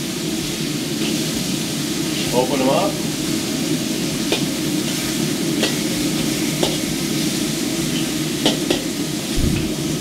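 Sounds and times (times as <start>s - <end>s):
meat sizzling in oil: 0.0s - 10.0s.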